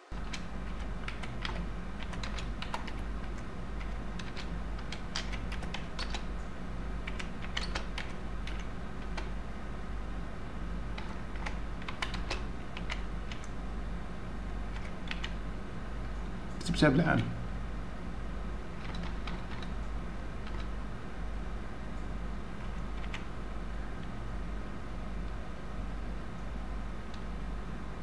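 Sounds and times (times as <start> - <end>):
steady low hum: 0.0 - 28.0
keyboard key clicks: 0.2 - 6.3, 7.0 - 9.3, 11.0 - 13.6.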